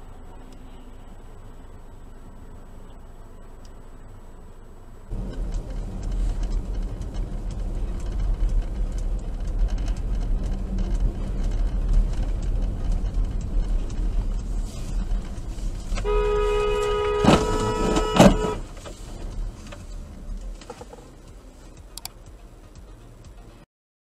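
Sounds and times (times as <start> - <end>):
car road noise rumble: 0.0 - 23.6.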